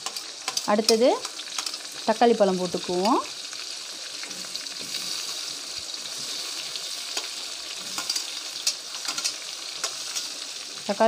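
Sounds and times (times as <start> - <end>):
oil sizzling in a wok: 0.0 - 11.0
metal spoon scraping a plate: 7.2 - 10.3.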